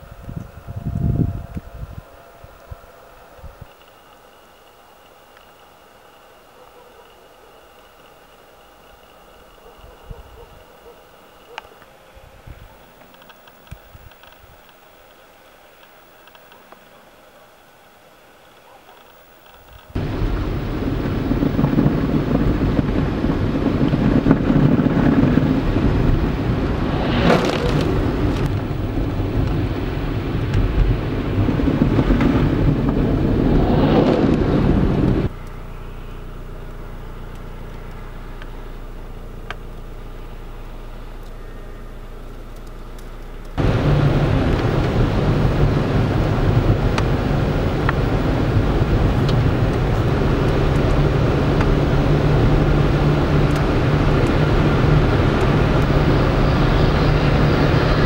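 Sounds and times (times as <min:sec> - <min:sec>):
vehicle engine drone: 0:00.0 - 0:14.4, 0:18.0 - 0:58.0
road noise rushing: 0:20.0 - 0:35.4, 0:43.5 - 0:58.0
trucks passing: 0:20.0 - 0:35.4, 0:43.6 - 0:58.0.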